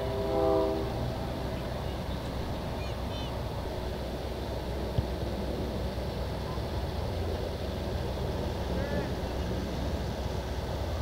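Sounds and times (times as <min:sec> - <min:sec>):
faint distant voices: 0:01.2 - 0:04.0, 0:06.0 - 0:11.0.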